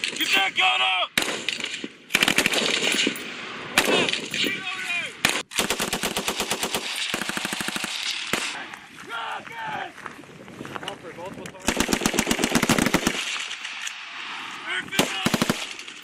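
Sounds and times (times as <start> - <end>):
automatic gunfire bursts: 1.2 - 3.2, 5.2 - 8.6, 11.7 - 13.6, 15.0 - 16.0.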